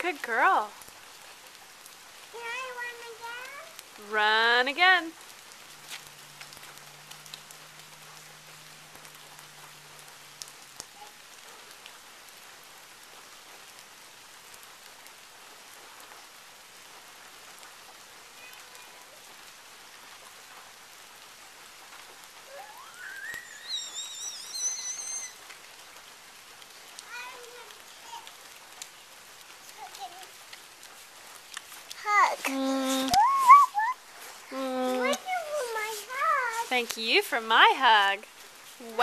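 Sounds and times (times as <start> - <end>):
water drips: 0.0 - 20.7, 21.8 - 39.0
steady rain on pavement: 0.0 - 39.0
child squealing: 22.5 - 25.4, 32.0 - 35.3.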